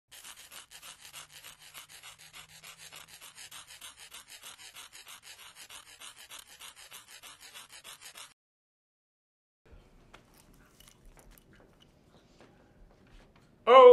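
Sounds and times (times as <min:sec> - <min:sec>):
pen scribbling on surface: 0:00.1 - 0:08.4.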